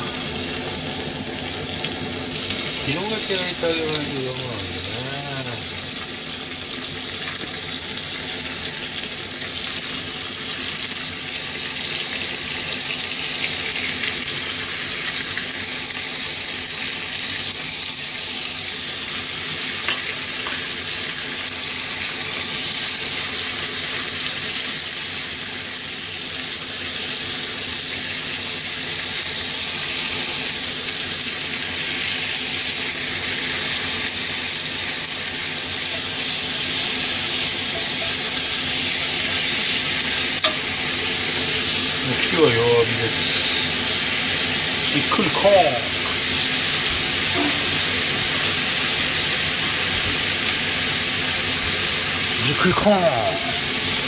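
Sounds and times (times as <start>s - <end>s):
pork frying in oil: 0.0s - 54.0s.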